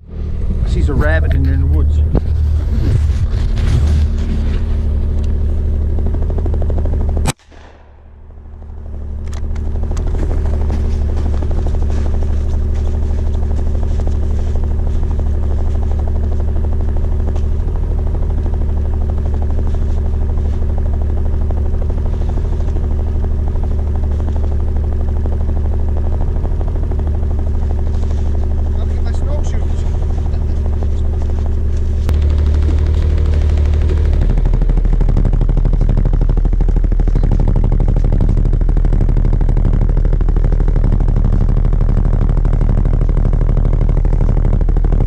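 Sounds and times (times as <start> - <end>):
snowmobile engine idling: 0.0 - 45.0
gunshot: 7.2 - 8.8.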